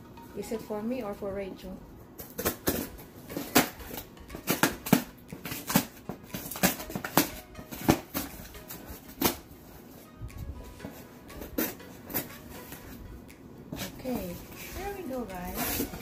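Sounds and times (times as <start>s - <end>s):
scissors snipping packing tape: 2.2s - 9.5s, 15.5s - 16.0s.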